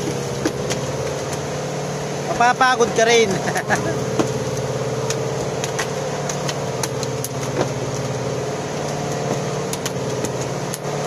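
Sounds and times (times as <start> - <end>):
boat engine running: 0.0 - 11.0
fish thrashing on wet deck: 3.6 - 11.0.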